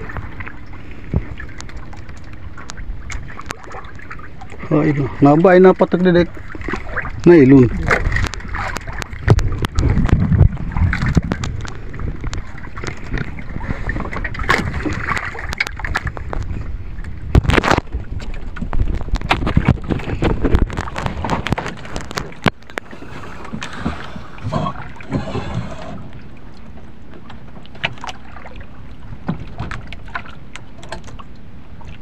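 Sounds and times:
knocks and clicks from boat: 0.0 - 32.0
water slapping against canoe: 0.0 - 32.0
wind on microphone: 6.8 - 22.6.

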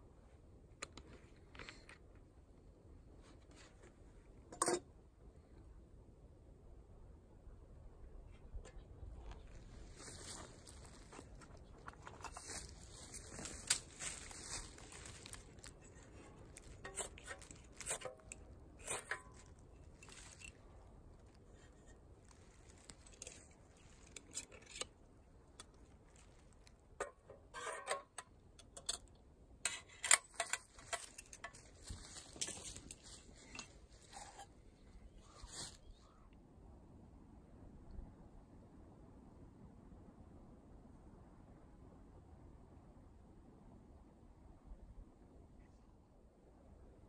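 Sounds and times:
objects clicking and rustling: 8.7 - 20.8, 22.3 - 25.0, 29.7 - 34.5.

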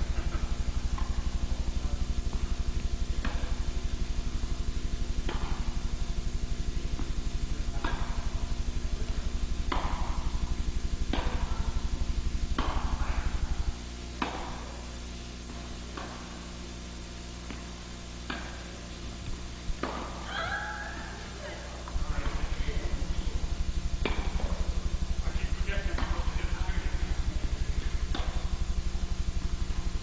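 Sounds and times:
low electrical buzz: 0.0 - 30.0
tennis racket hitting ball: 7.8 - 8.2, 9.7 - 10.3, 11.1 - 12.0, 12.6 - 13.2, 14.2 - 14.7, 18.2 - 18.6, 19.7 - 20.2, 21.9 - 25.0, 25.6 - 29.8.

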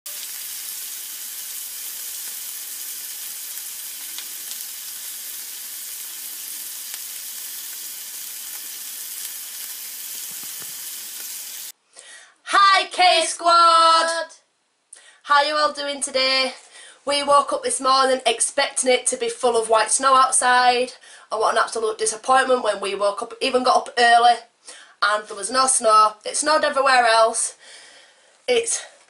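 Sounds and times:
sizzling hiss with crackles: 0.1 - 11.8.

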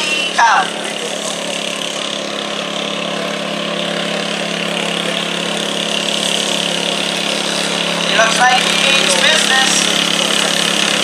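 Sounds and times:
garden tractor engine under load: 0.0 - 11.0.

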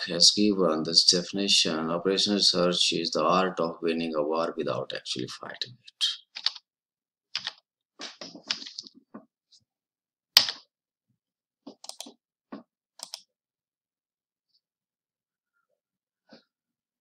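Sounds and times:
keyboard and mouse clicks: 6.4 - 6.6, 7.4 - 9.0, 10.4 - 10.6, 11.7 - 13.3.

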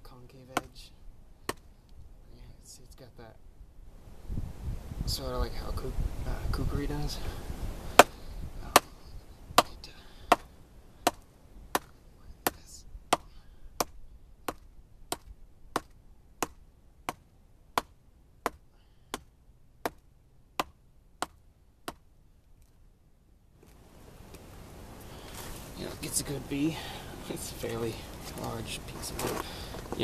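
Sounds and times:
knife chopping into wet log: 8.0 - 8.9, 9.6 - 11.9, 12.5 - 17.2.

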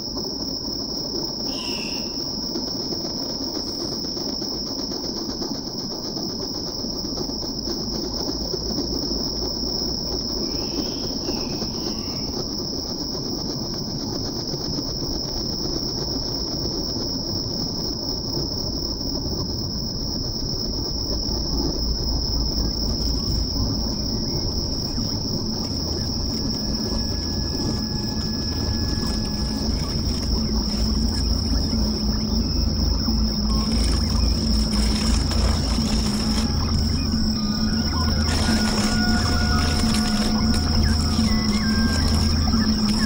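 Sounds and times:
high-pitched whine: 20.7 - 43.0
dense rumbling low drone: 20.9 - 43.0.

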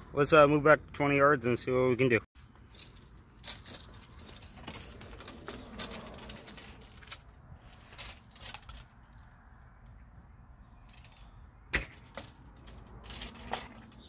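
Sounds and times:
archery gear clicking and rustling: 2.4 - 9.4, 10.9 - 14.0.

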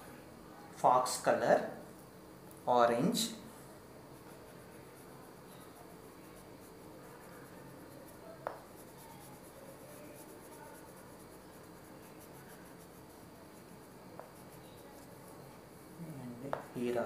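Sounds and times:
crayon rubbing on paper: 4.1 - 15.2.

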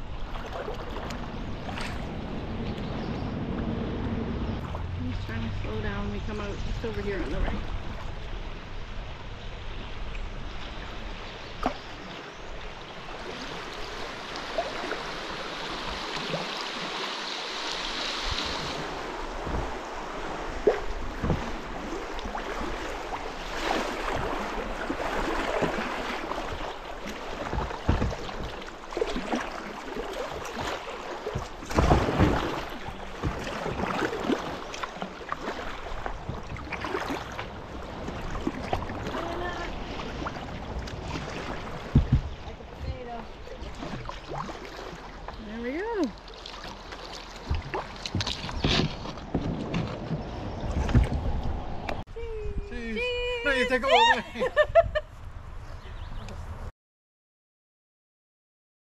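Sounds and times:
water rushing and splashing: 0.0 - 54.6
sharp knocks on kayak: 27.5 - 28.6, 41.8 - 42.5.

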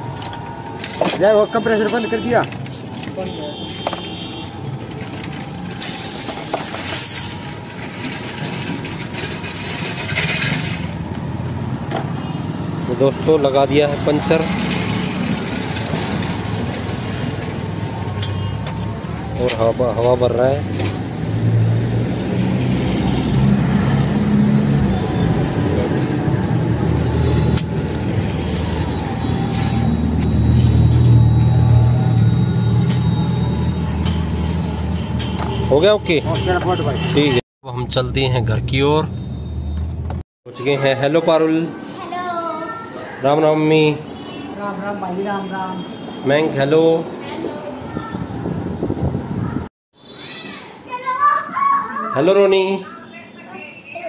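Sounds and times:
compressed air hissing: 5.8 - 7.5, 16.8 - 17.4.

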